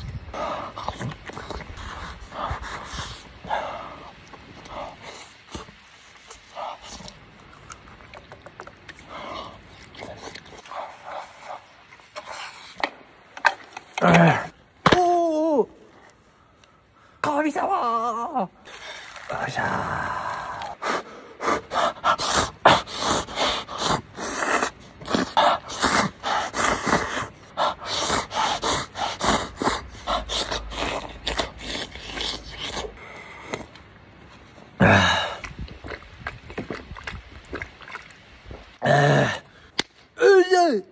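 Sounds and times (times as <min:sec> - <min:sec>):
noodles being slurped: 0:04.0 - 0:12.8, 0:21.5 - 0:38.7.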